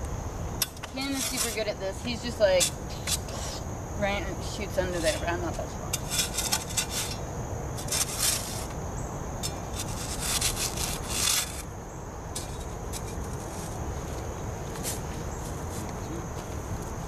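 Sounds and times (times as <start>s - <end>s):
blade scraping sandy soil: 0.8s - 3.6s, 4.7s - 7.2s, 7.8s - 8.7s, 9.4s - 11.6s.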